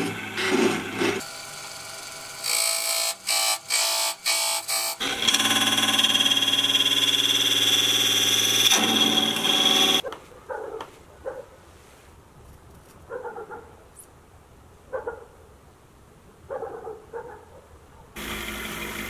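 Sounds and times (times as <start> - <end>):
wood lathe cutting: 0.0 - 10.0, 18.2 - 19.0
dog barking: 10.0 - 11.6, 13.1 - 13.8, 14.9 - 15.4, 16.5 - 18.1.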